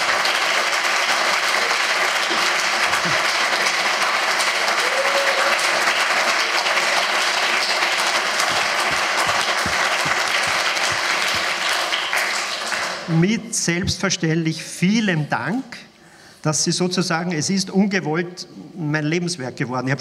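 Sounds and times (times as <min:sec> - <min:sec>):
audience applauding: 0:00.0 - 0:13.1.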